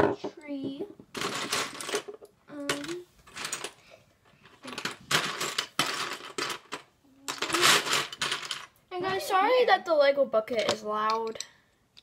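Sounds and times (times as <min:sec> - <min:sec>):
plastic bricks rattling in bucket: 0:01.1 - 0:02.2, 0:04.6 - 0:08.7.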